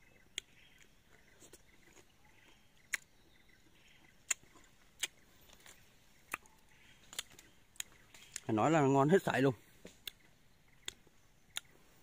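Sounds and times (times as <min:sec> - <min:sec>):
faint outdoor background: 0:00.0 - 0:12.0
mouth clicks and lip smacks: 0:00.3 - 0:03.1, 0:04.2 - 0:08.5, 0:09.8 - 0:11.7.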